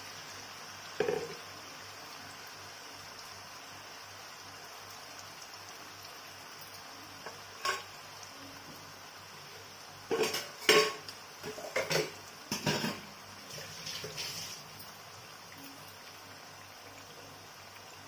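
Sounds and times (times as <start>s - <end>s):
ghee sizzling in a frying pan: 0.0s - 18.0s
utensils clattering against cookware: 7.6s - 7.8s, 10.1s - 13.0s.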